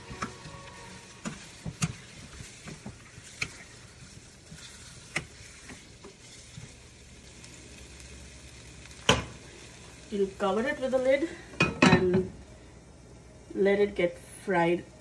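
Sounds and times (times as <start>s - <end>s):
spatula scraping pan: 0.0s - 6.8s
chicken sizzling in frying pan: 0.0s - 14.9s.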